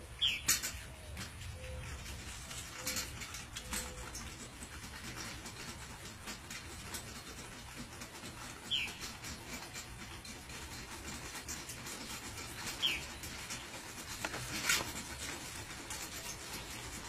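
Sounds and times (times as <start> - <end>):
deer sucking clicks: 0.0 - 17.0
high bird chirp: 0.1 - 1.9.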